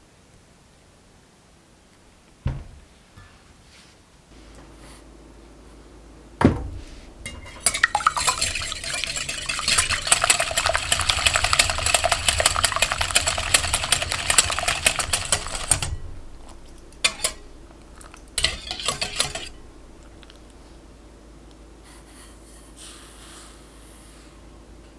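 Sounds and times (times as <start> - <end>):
knock: 2.4 - 2.8
whisk clicking against glass bowl: 7.3 - 19.6.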